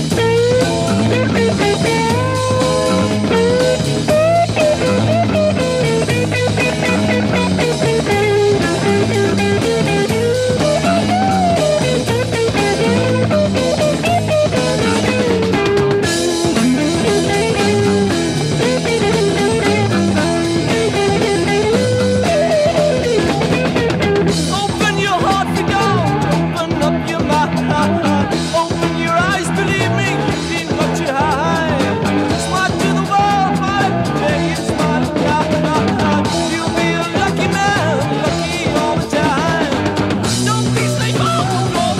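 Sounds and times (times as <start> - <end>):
bass line: 0.0 - 41.9
drum kit: 0.0 - 41.9
electric guitar: 0.0 - 41.9
psychedelic rock music: 0.0 - 41.9.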